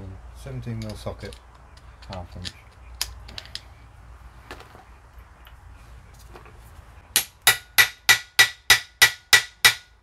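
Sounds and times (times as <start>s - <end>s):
hammer striking metal: 7.1s - 9.9s.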